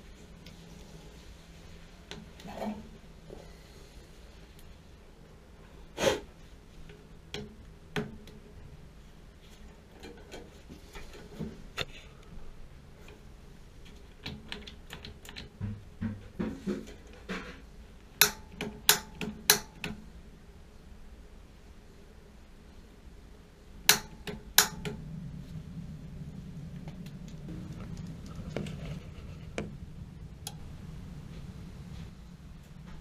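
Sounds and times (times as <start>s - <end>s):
gloved hands clicking on valve: 18.2s - 20.0s, 23.9s - 25.0s.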